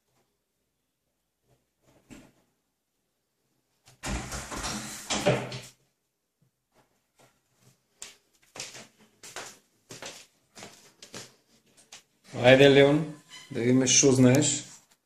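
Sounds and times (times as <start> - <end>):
soft footsteps on wooden floor: 6.7 - 12.1.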